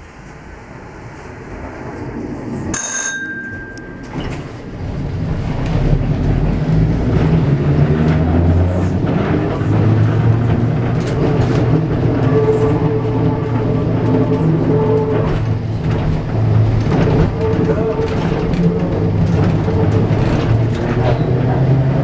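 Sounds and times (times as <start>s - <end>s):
tram motors and wheels humming: 0.0s - 22.0s
streetcar bell ringing: 2.7s - 4.9s.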